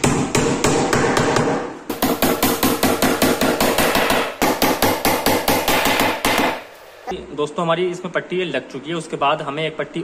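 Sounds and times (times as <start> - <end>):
hammer striking nail into wood: 0.0 - 6.6.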